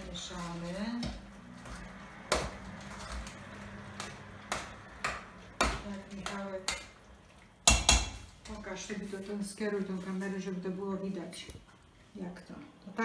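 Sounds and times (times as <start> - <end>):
spoon stirring stew: 0.5 - 10.6.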